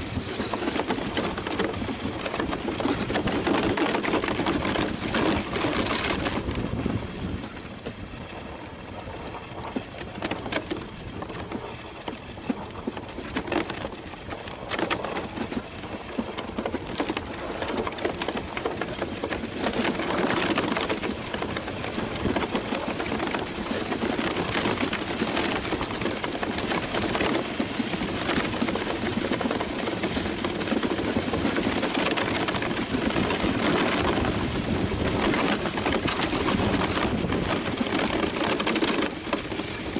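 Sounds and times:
steel runners scraping over ice: 0.0 - 39.9.

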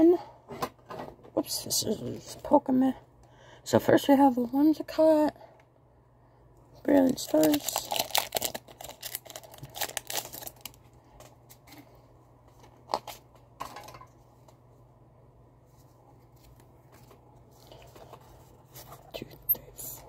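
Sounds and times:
foil wrapper crinkling: 6.9 - 11.3
cards rustling: 6.9 - 11.8.

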